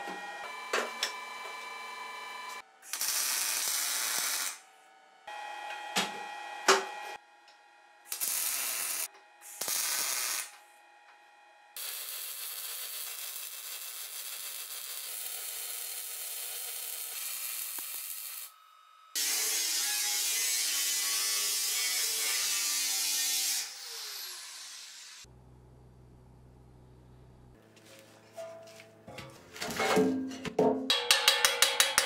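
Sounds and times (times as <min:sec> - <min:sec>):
welding crackling hiss: 0:02.8 - 0:04.6, 0:08.1 - 0:10.5, 0:11.8 - 0:18.6
sharp metal knocks: 0:30.0 - 0:32.0.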